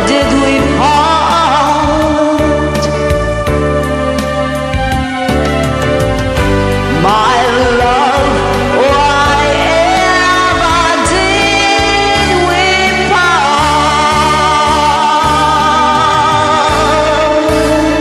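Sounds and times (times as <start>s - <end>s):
woman singing: 0.0s - 3.2s, 6.9s - 18.0s
karaoke backing track: 0.0s - 18.0s.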